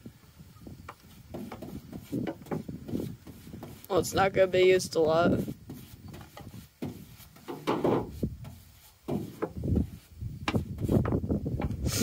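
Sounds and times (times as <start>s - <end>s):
paintbrush rubbing on metal: 1.1s - 11.2s.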